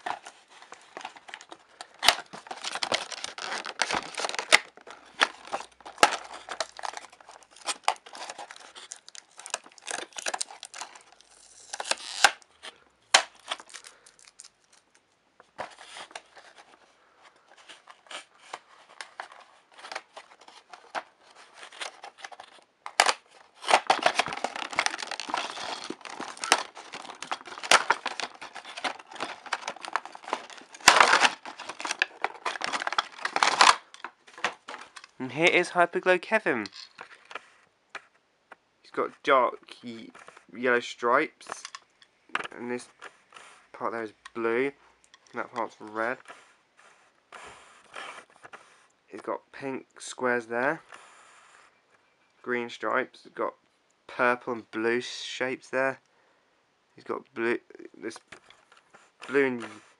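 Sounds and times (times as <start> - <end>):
packaging crinkling and tearing: 0.0 - 16.8, 17.6 - 35.4.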